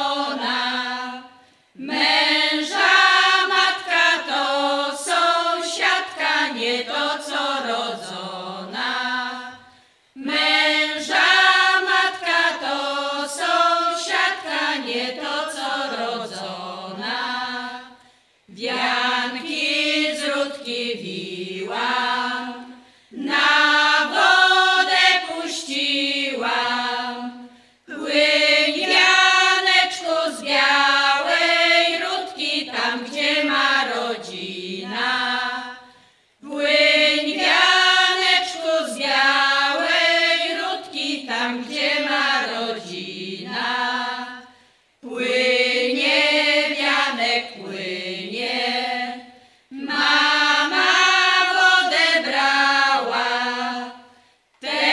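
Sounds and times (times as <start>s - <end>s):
women singing together unaccompanied: 0.0s - 54.9s.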